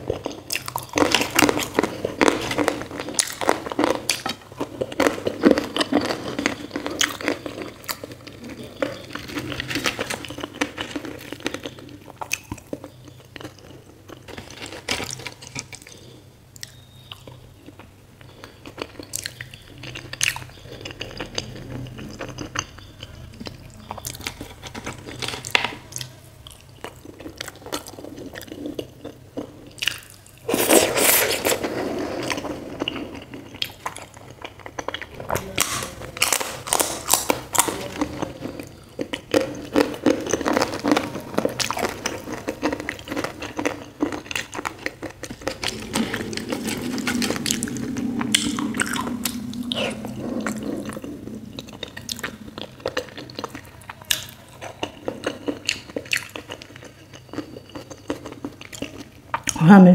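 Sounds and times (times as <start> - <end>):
wet chewing: 32.2 - 59.6.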